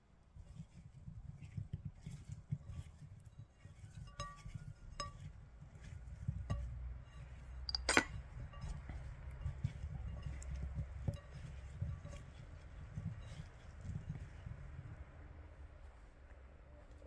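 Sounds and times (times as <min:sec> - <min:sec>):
potato wedges rustling in bowl: 0:00.4 - 0:14.8
clinks against ceramic bowl: 0:03.8 - 0:05.3, 0:06.4 - 0:12.3.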